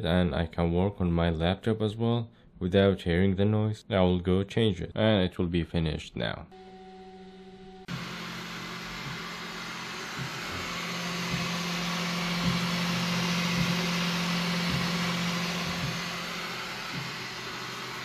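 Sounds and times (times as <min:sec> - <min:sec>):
printer fans whirring: 0:07.8 - 0:18.0.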